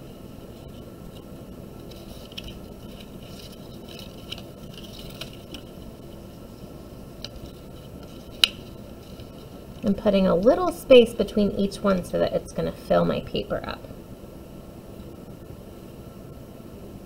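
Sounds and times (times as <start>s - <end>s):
paper rustling: 1.8s - 6.2s, 7.2s - 10.0s.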